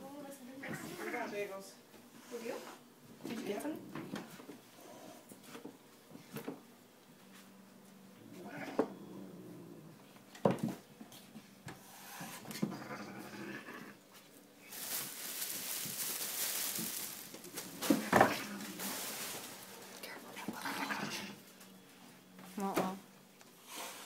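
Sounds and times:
cat scuffling on floor: 14.1s - 20.0s.

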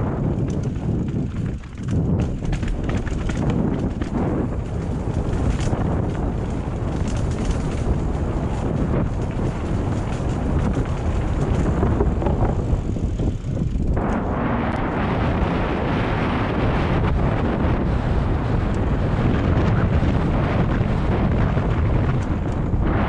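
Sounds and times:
wind rushing over microphone: 0.0s - 23.0s
tyres rolling over gravel: 0.1s - 14.3s.

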